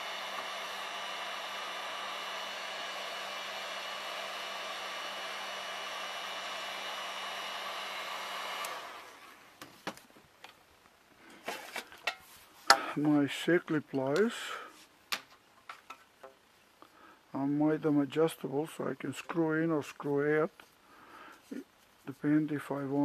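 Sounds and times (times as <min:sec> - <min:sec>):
heat gun blowing: 0:00.0 - 0:09.6.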